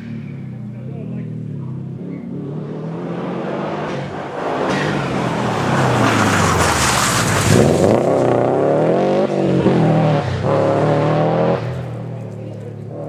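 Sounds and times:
rally car passing at speed: 0.0s - 13.0s
engine revving hard: 1.8s - 11.7s.

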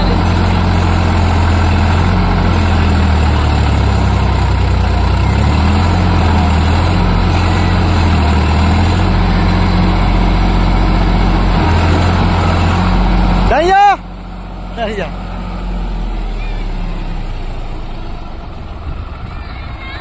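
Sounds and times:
tractor diesel engine running: 0.0s - 20.0s.

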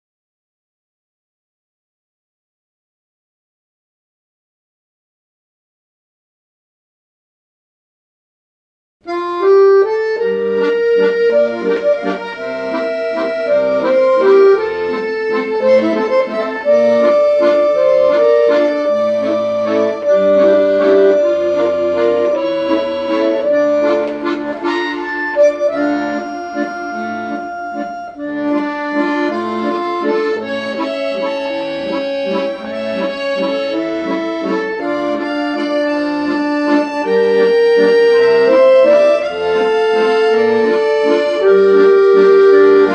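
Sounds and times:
accordion music: 9.0s - 42.9s.

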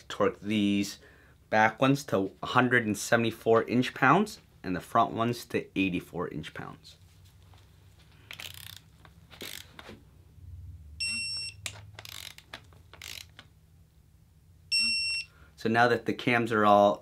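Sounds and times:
ratchet clicks: 8.3s - 9.7s, 11.6s - 13.4s
torque wrench beeping: 11.0s - 12.4s, 13.0s - 13.3s, 14.7s - 15.3s.

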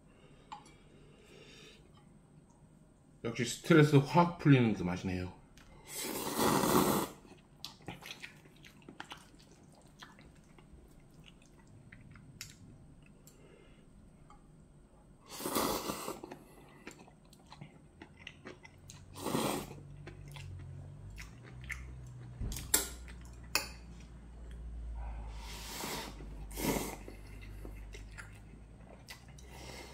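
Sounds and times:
noodles being slurped: 5.9s - 7.2s
soft chewing: 7.2s - 14.6s, 16.1s - 29.9s.

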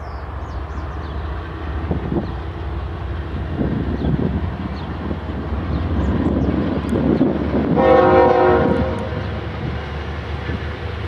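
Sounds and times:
locomotive engine rumble: 0.0s - 11.0s
locomotive air horn blast: 7.8s - 9.3s.

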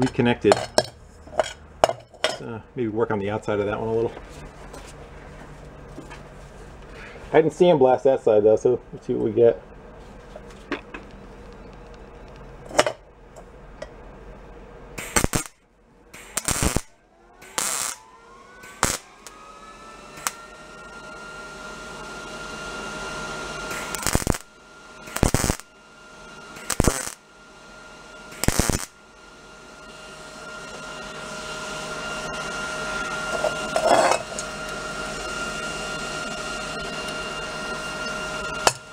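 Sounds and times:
faint rising whine: 2.4s - 38.9s
welder arc crackling: 14.9s - 15.6s, 16.2s - 38.9s.

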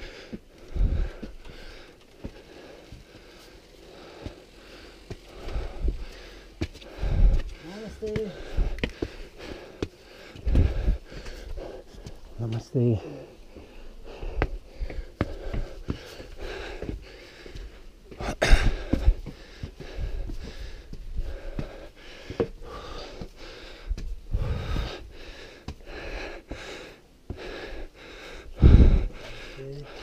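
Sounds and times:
heavy wheezy breathing: 0.0s - 30.0s
wind rumbling on microphone: 0.7s - 1.2s, 7.0s - 7.6s, 10.4s - 11.1s, 24.1s - 25.0s, 28.6s - 29.2s.

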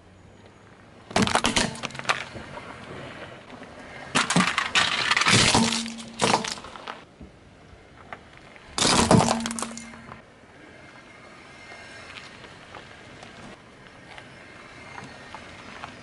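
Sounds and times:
car tyre crushing plastic toys: 1.1s - 3.1s, 3.8s - 7.0s, 8.0s - 10.2s.

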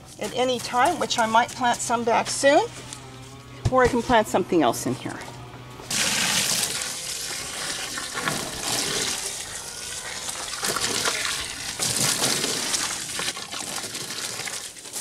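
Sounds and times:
hose spraying water: 5.9s - 15.0s.

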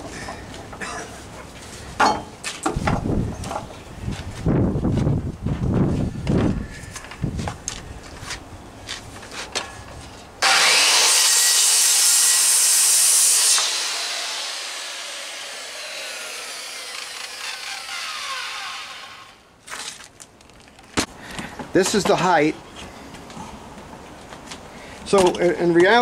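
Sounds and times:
circular saw cutting wood: 10.4s - 19.4s
saw blade winding down: 10.4s - 19.4s.

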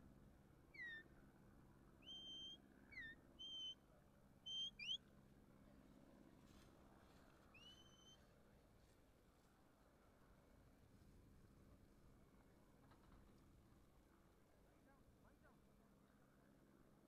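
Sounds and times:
short clear whistles: 2.0s - 3.8s, 4.5s - 5.0s, 7.6s - 8.2s.

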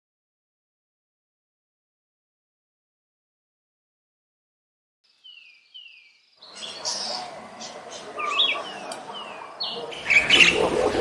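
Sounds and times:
birds chirping and calling: 5.1s - 11.0s.

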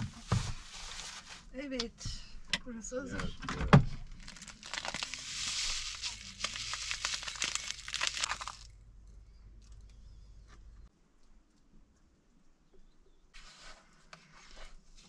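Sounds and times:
paper bag crinkling: 4.1s - 8.7s
seeds crackling onto plate: 4.2s - 8.7s.

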